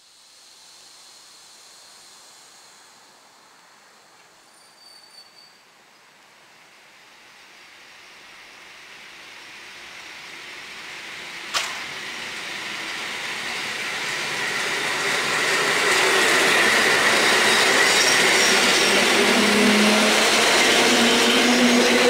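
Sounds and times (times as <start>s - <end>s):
train running past: 6.1s - 22.0s
sharp click: 11.5s - 11.9s.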